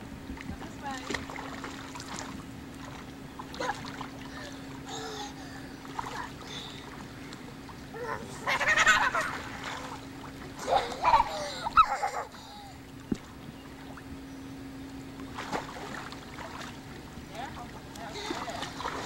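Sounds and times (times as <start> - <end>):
steady low hum: 0.0 - 19.0
water splashing: 0.4 - 12.2, 15.2 - 19.0.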